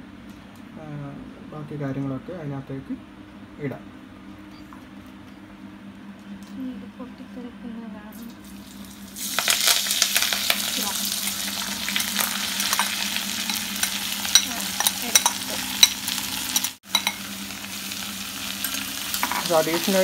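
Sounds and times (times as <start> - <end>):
vegetables sizzling in hot oil: 8.2 - 20.0
spoon scraping and clicking on pan: 12.6 - 17.2.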